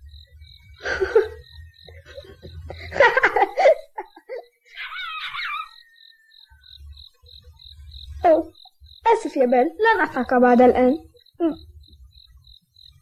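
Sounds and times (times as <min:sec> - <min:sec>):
faint high chirp: 0:00.0 - 0:03.0, 0:04.2 - 0:13.0
cartoon boy laughing: 0:00.8 - 0:05.9.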